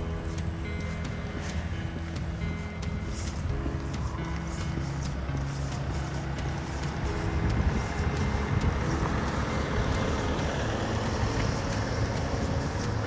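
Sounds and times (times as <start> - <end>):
faint background music: 0.0 - 13.0
vehicle driving past: 3.1 - 13.0.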